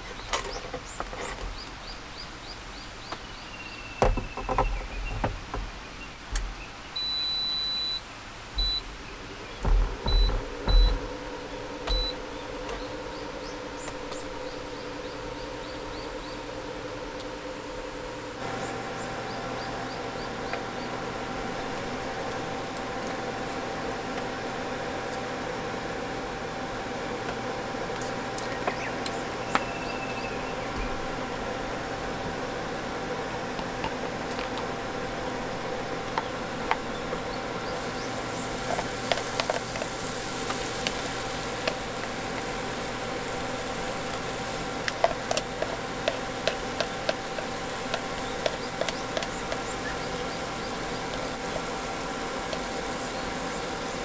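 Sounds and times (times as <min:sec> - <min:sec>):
cooktop electric hum and fan: 0:00.0 - 0:54.0
cooktop beeps: 0:07.0 - 0:08.0, 0:08.6 - 0:08.8.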